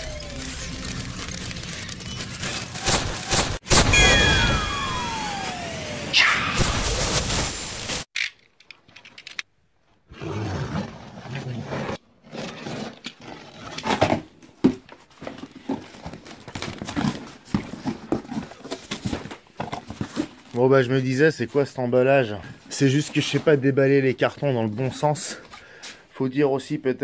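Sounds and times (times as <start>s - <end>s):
foam packaging handled: 0.0s - 3.6s
explosion sound effect: 2.7s - 8.1s.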